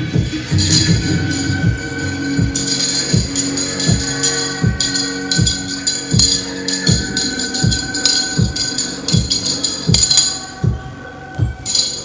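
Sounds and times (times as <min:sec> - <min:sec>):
sustained tones: 0:00.3 - 0:10.6
jingling percussion: 0:00.3 - 0:10.8, 0:11.4 - 0:12.0.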